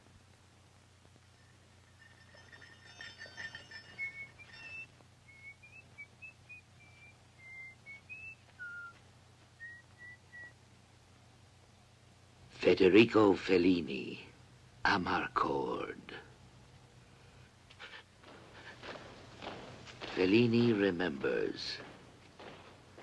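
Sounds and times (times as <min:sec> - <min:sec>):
person whistling a slow tune: 0:03.9 - 0:09.0, 0:09.6 - 0:10.6.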